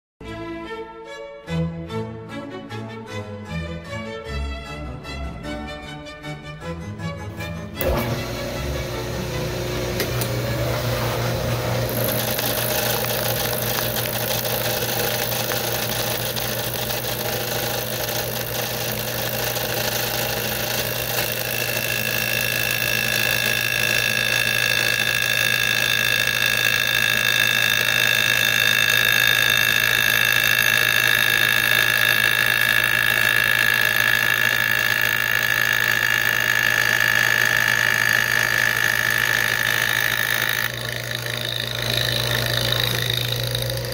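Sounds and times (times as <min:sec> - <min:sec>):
milling cutter cutting wood: 0:07.6 - 0:43.9
low motor hum: 0:07.7 - 0:43.9.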